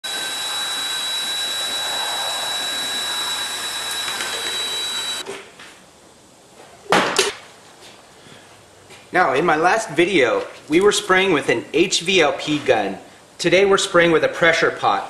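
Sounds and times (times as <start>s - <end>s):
cordless drill whining: 0.0s - 5.2s.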